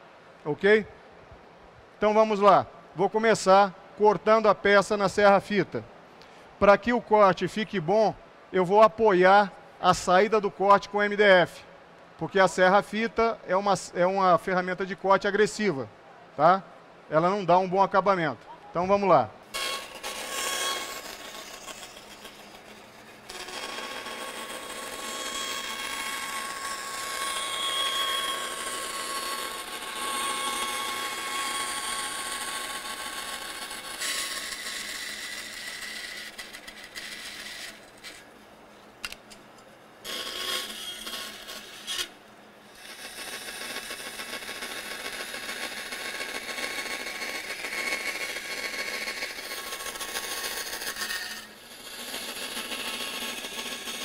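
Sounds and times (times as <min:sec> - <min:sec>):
bandsaw cutting wood: 0:19.5 - 0:38.2, 0:40.0 - 0:54.0.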